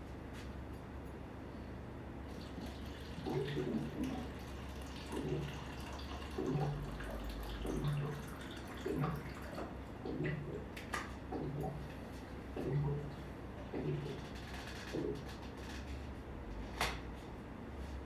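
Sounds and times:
water sloshing and slapping: 2.3 - 15.4.

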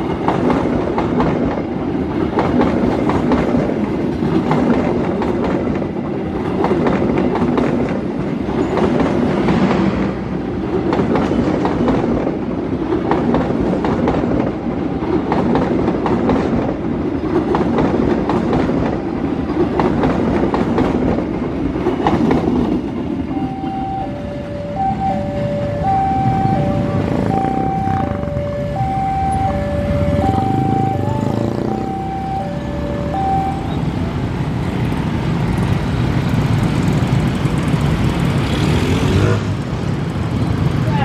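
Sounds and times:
train wheels clacking over rail joints: 0.0 - 23.3
train passing with rumble: 0.0 - 41.0
level-crossing alarm two tones: 23.3 - 34.1.

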